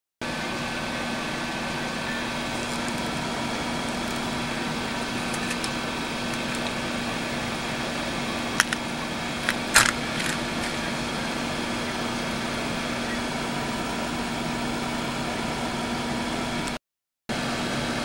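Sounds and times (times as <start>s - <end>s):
faint hum: 0.4s - 16.8s
sharp clicks: 8.6s - 8.8s.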